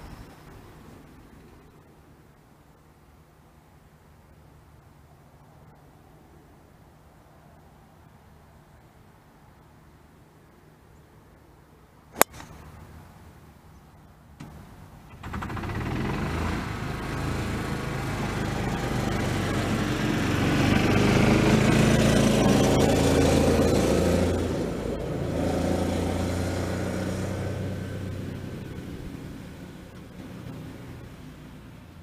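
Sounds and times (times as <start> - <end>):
golf club striking ball: 12.2 - 12.8
vehicle engine: 14.4 - 32.0.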